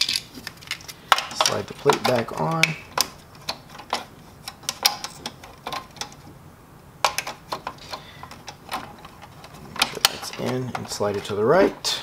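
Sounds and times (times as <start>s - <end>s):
plastic clicks and knocks: 7.0s - 11.3s.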